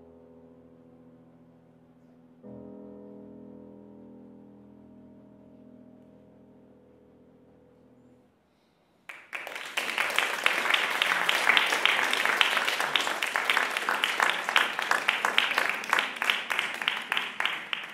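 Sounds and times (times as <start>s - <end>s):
audience applauding: 9.1s - 17.9s.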